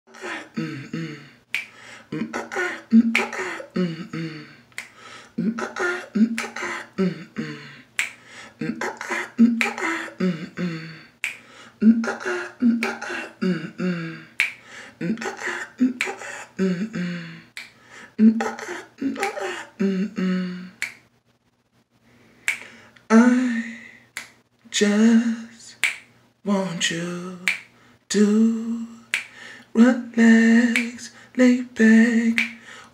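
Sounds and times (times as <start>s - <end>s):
person singing a cappella: 0.1s - 21.0s, 23.1s - 32.9s
sharp snaps: 1.5s - 3.6s, 4.7s - 6.8s, 7.9s - 10.0s, 11.2s - 13.3s, 14.4s - 16.4s, 17.5s - 17.8s, 18.4s - 19.7s, 20.8s - 21.2s, 22.4s - 23.1s, 24.1s - 24.6s, 25.8s - 26.2s, 27.4s - 27.8s, 29.0s - 29.4s, 30.6s - 31.1s, 32.1s - 32.6s.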